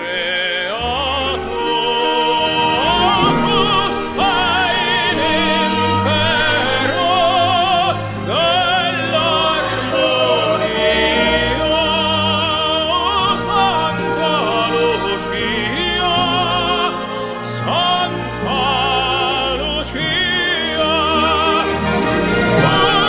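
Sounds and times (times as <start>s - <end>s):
operatic singing with vibrato: 0.0s - 23.0s
orchestral accompaniment: 0.0s - 23.0s.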